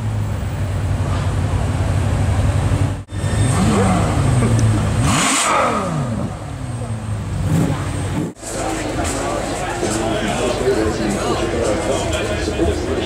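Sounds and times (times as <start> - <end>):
car engine idling: 0.0 - 13.0
engine revving: 3.1 - 8.4.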